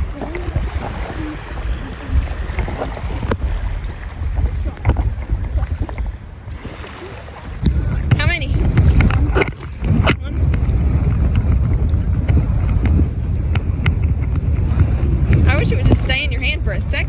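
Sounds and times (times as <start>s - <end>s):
feet wading through seawater: 0.0s - 13.5s
wind rumbling on microphone: 0.0s - 17.0s.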